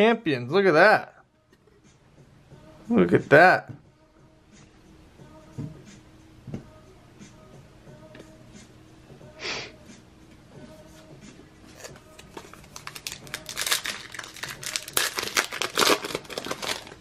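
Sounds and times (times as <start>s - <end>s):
wrapper tearing and crinkling: 11.8s - 17.0s.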